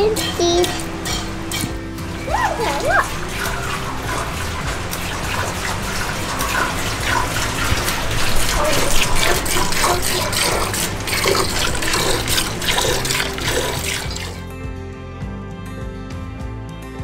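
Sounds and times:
milk squirting into metal pail: 2.6s - 14.5s.

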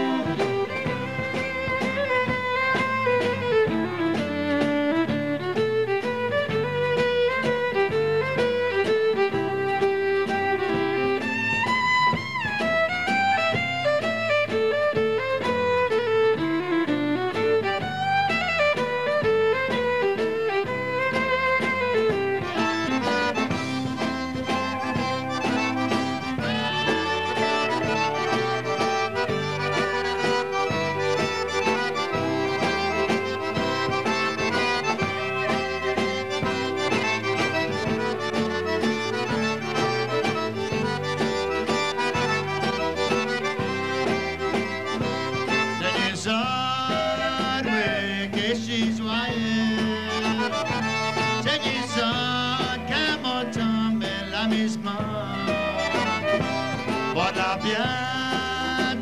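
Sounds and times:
accordion playing: 0.0s - 59.0s
band backing: 0.0s - 59.0s
man singing: 26.2s - 28.0s, 45.7s - 55.9s, 57.0s - 59.0s.

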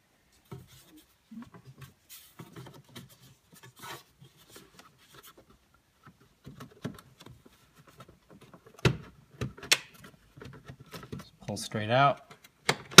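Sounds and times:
plastic snapping: 8.7s - 11.2s.

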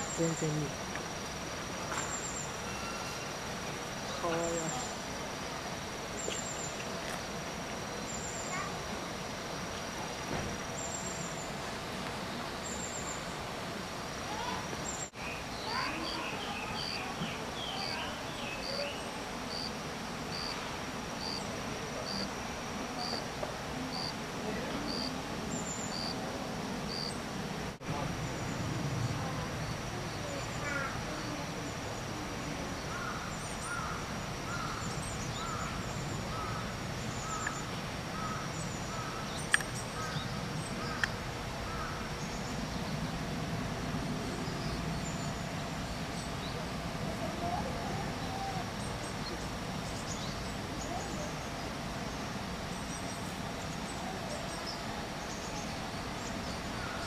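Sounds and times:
high insect drone: 0.0s - 27.2s
low background murmur: 0.0s - 57.0s
lower bird call: 1.9s - 3.4s, 32.6s - 43.2s
sharp clicks: 39.5s - 39.8s.

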